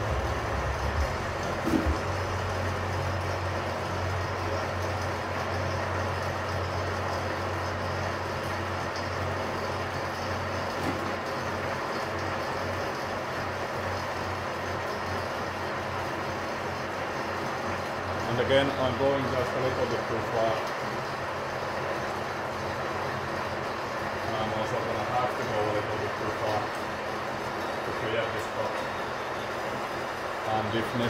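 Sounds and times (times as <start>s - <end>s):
milling machine hum: 0.0s - 31.0s.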